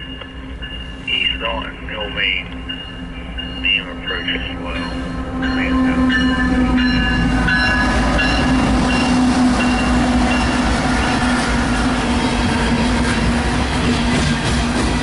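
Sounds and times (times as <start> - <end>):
locomotives passing: 0.0 - 15.0
train wheels clattering on rails: 2.3 - 15.0.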